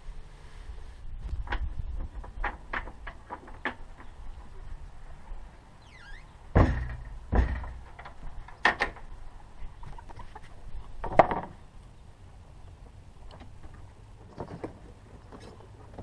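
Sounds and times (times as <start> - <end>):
wooden panel thuds and knocks: 6.5 - 9.0.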